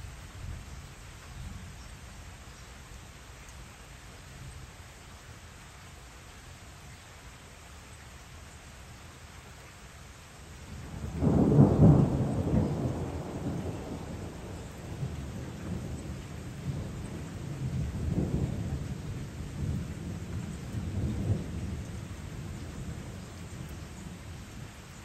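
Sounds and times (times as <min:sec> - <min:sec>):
rain hissing: 0:00.0 - 0:25.0
thunder rumbling: 0:10.8 - 0:24.5.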